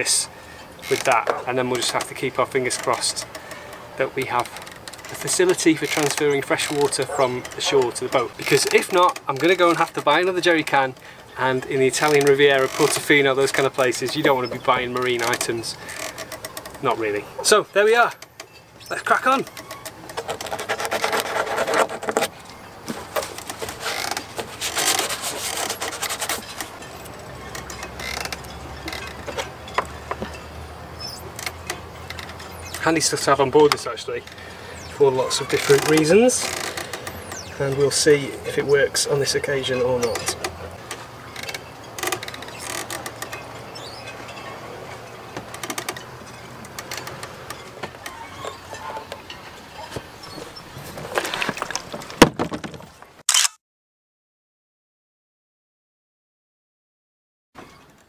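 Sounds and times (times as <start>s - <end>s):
wooden stick scraping epoxy: 18.9s - 22.3s, 23.2s - 26.8s
tissue rubbing on plastic can: 24.4s - 26.5s.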